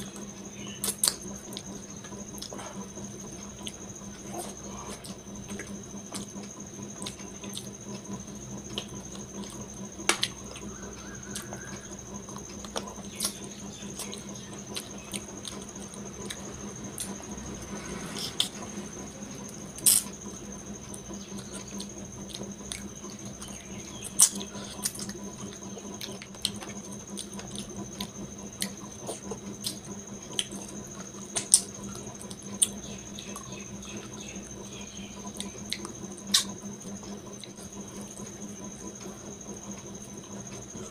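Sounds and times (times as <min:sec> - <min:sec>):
person chewing and lip smacking: 0:00.0 - 0:02.9, 0:07.0 - 0:07.7, 0:12.3 - 0:16.4, 0:24.1 - 0:33.5, 0:35.3 - 0:37.7.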